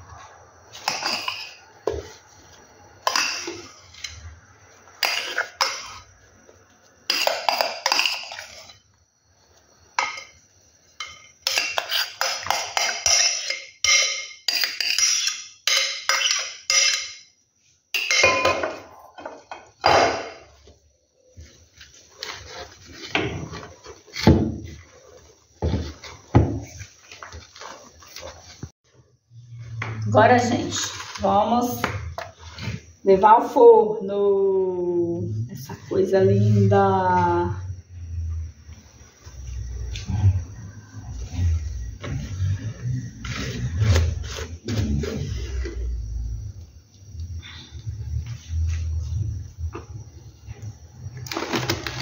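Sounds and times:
spatula scraping glass bowl: 11.4 - 15.4.

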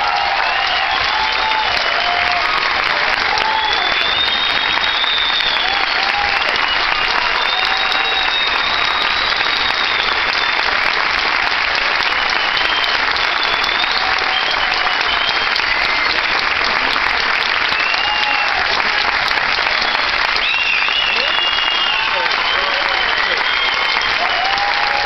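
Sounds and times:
audience applauding: 0.0 - 25.0
shrill whistles: 0.4 - 2.0, 3.3 - 10.8, 12.1 - 15.9, 17.6 - 18.6, 19.6 - 25.0.

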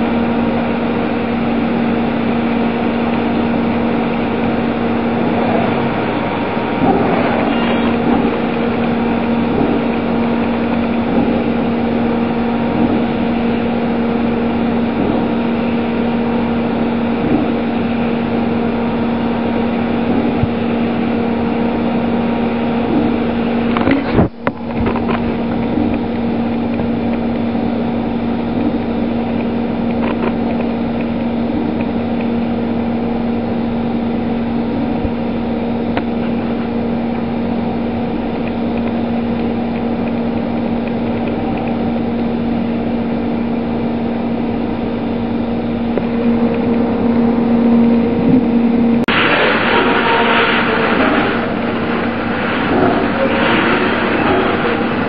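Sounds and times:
milling machine hum: 0.0 - 55.0
coolant spray hiss: 49.1 - 55.0.

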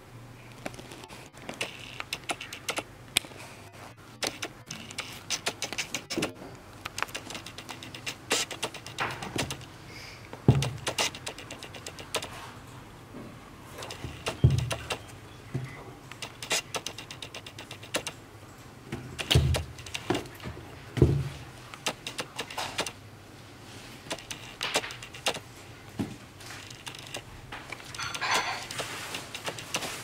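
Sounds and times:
clicks and rubbing of a shoe: 0.5 - 3.4, 4.2 - 9.7, 10.5 - 12.4, 13.8 - 15.1, 16.1 - 18.2, 19.2 - 20.4, 21.6 - 23.0, 24.0 - 25.5, 26.4 - 30.0
dull thumps: 10.4 - 12.3, 13.8 - 18.2, 18.9 - 22.9.

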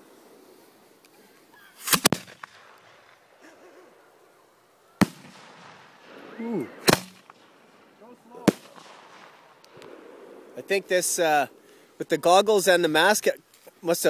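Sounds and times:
fireworks bangs: 5.0 - 10.6.

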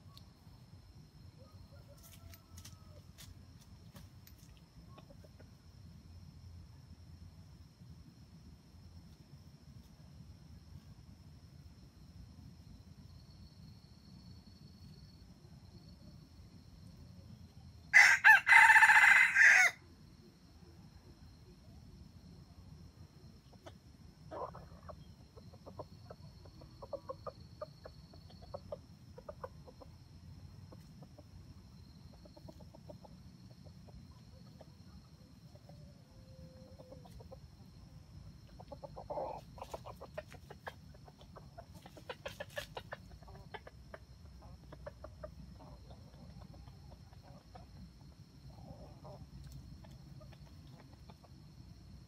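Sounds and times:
junglefowl clucking: 23.4 - 30.0, 38.4 - 47.8, 48.5 - 51.3.

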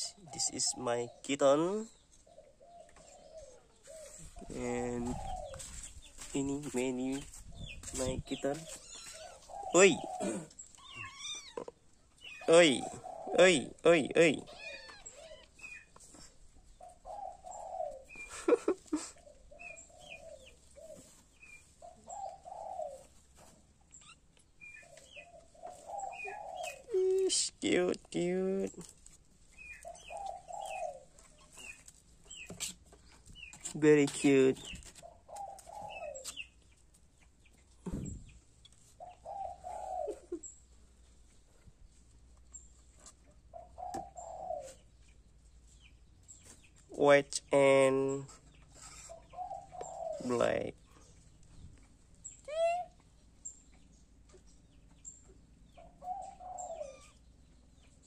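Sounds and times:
birds warbling: 0.0 - 23.3, 23.9 - 40.8, 42.4 - 58.0
dove cooing: 2.2 - 11.7, 12.4 - 13.8, 14.6 - 23.3, 24.7 - 27.4, 29.6 - 32.7, 34.6 - 36.5, 39.0 - 40.5, 43.4 - 45.0, 48.7 - 51.1, 52.4 - 53.0, 55.7 - 57.3
dull thump: 37.8 - 38.4.

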